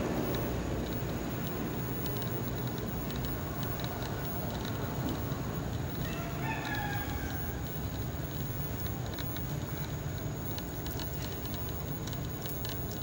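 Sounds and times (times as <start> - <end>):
drawn-out animal call: 3.2 - 8.7.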